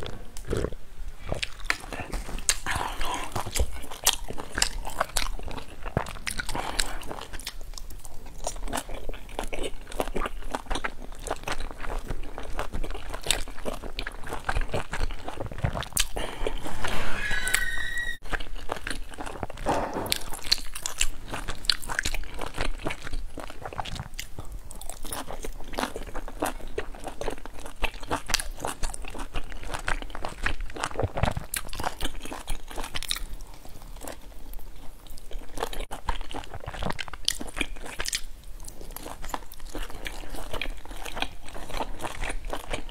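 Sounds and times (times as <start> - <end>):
brief squeak: 16.6 - 18.2.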